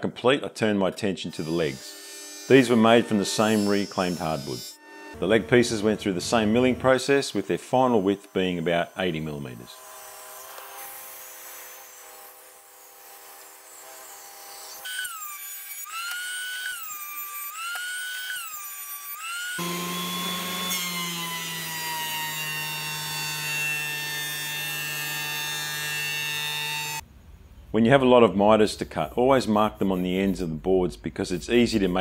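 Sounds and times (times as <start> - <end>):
thickness planer running: 4.8 - 10.8, 19.5 - 27.0
table saw ripping a board: 7.0 - 27.0.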